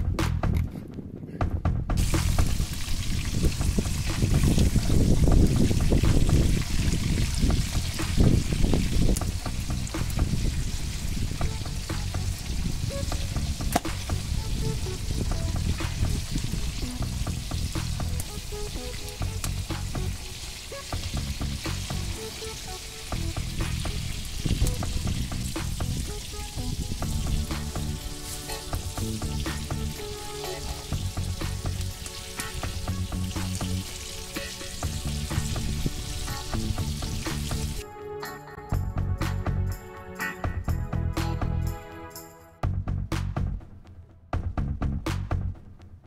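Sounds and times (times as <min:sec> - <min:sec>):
background music with bass: 0:00.0 - 0:46.0
fish sizzling and popping in oil: 0:02.0 - 0:37.8.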